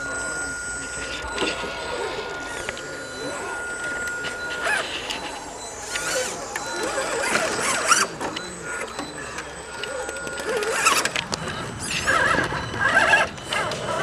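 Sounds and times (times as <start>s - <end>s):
small electric motor whining: 0.0s - 8.9s.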